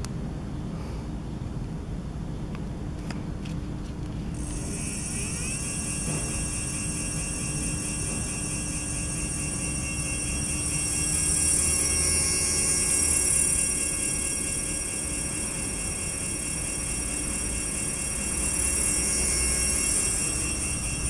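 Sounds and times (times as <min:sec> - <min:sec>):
electric motor whine: 0:04.3 - 0:21.0.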